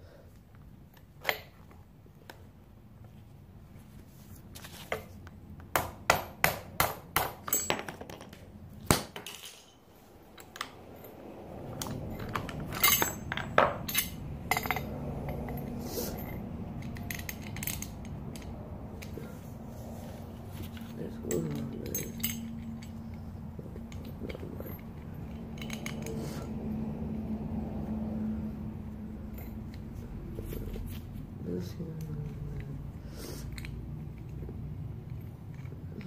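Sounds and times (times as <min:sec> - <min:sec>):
hammer striking metal: 0:05.8 - 0:07.9
low hum: 0:09.6 - 0:36.0.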